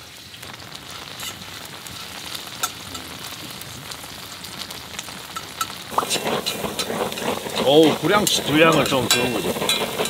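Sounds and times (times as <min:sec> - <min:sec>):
pork sizzling in hot pan: 0:00.0 - 0:10.0
fat spitting pops: 0:05.9 - 0:10.0.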